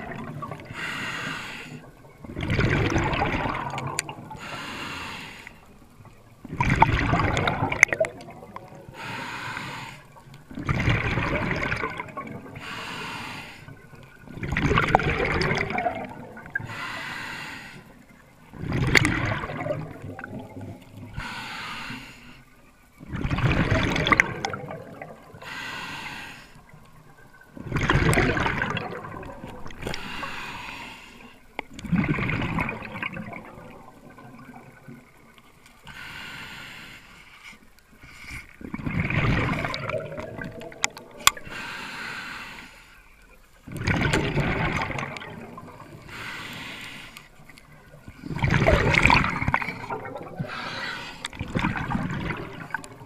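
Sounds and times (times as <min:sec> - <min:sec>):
exhaled bubbles rushing: 0:00.0 - 0:00.8, 0:02.1 - 0:04.5, 0:06.0 - 0:08.9, 0:10.5 - 0:12.6, 0:14.2 - 0:16.7, 0:18.5 - 0:21.2, 0:23.0 - 0:25.4, 0:27.0 - 0:30.4, 0:31.7 - 0:35.4, 0:38.6 - 0:41.4, 0:43.6 - 0:46.2, 0:47.6 - 0:53.0
regulator inhale hiss: 0:00.7 - 0:02.0, 0:04.4 - 0:05.8, 0:08.9 - 0:10.2, 0:12.6 - 0:13.9, 0:16.6 - 0:18.1, 0:21.1 - 0:22.6, 0:25.4 - 0:26.8, 0:29.8 - 0:31.6, 0:35.8 - 0:38.6, 0:41.4 - 0:43.2, 0:46.0 - 0:47.4, 0:49.7 - 0:51.4.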